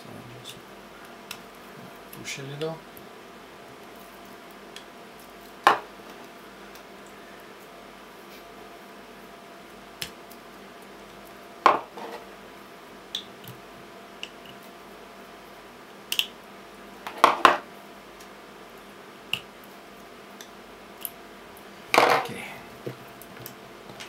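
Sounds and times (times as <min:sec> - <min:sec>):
batteries set down on table: 0:22.0 - 0:22.3.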